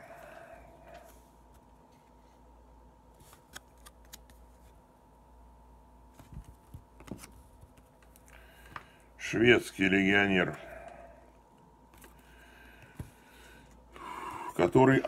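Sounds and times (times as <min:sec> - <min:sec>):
low steady hum: 0:00.0 - 0:15.0
cards clicking and rustling: 0:03.2 - 0:04.8, 0:06.2 - 0:08.4.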